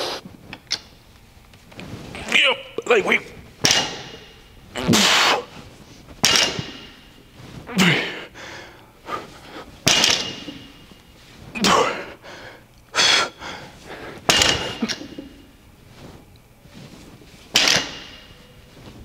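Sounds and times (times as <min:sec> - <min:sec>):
man exhaling and grunting: 0:07.6 - 0:09.3, 0:11.5 - 0:12.3.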